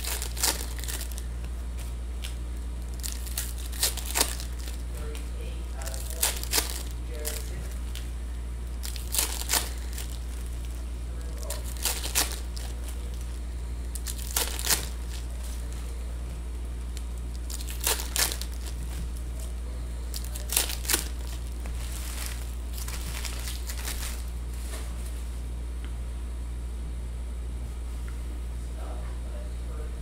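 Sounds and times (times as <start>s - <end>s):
foil wrappers crinkling and tearing: 0.0s - 25.3s.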